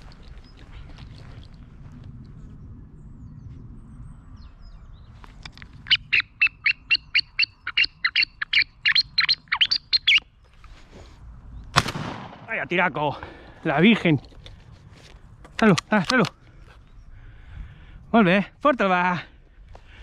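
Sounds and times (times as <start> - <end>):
bird chirping sharply: 5.9 - 10.3.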